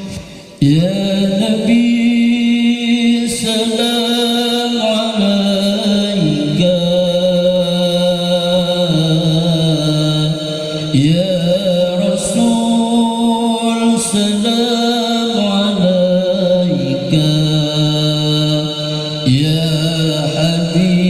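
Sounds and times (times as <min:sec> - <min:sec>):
man reciting melodically: 0:00.0 - 0:21.0
short breath: 0:00.1 - 0:00.6.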